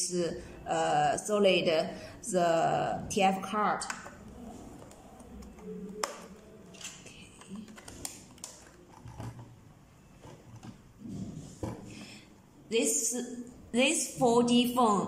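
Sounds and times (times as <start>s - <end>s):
plastic phone clicks and knocks: 6.0s - 9.5s.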